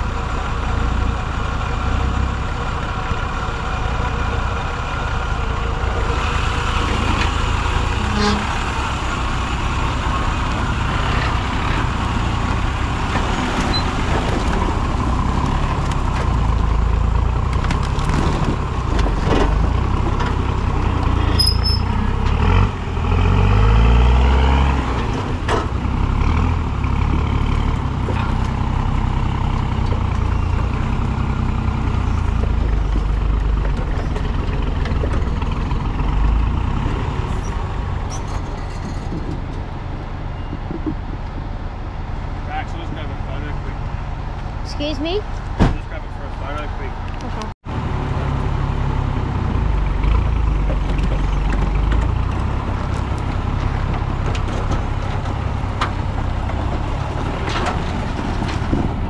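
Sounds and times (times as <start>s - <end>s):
vehicle engine revving: 1.8s - 38.1s.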